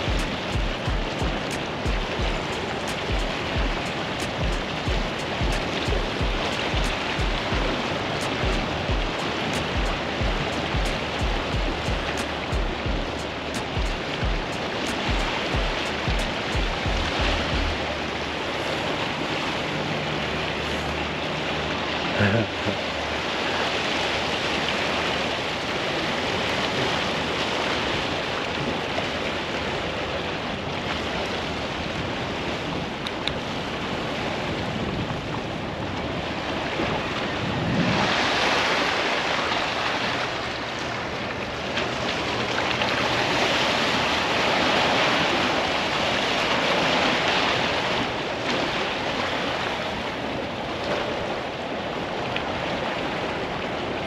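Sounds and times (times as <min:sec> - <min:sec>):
wind buffeting microphone: 0:00.0 - 0:19.1, 0:31.6 - 0:39.6
waves washing against rocks: 0:23.2 - 0:54.0.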